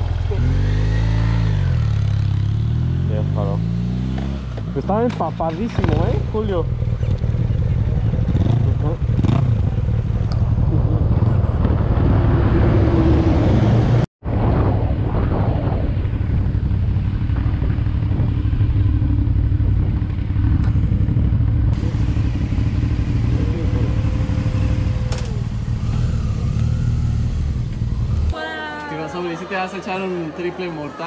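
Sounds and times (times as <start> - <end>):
motorcycle engine running: 0.0 - 12.2, 15.8 - 28.4
wind rumble on microphone: 7.0 - 28.4.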